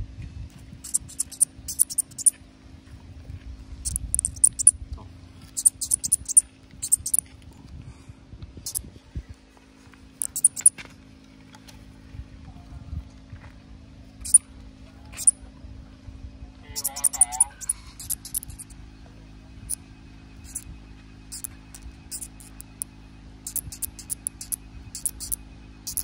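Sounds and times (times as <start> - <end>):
katydid chirping: 0.8 - 2.3, 3.8 - 4.7, 5.5 - 7.2, 10.2 - 10.7, 16.7 - 18.8, 19.6 - 19.8, 20.4 - 20.7, 21.3 - 26.0.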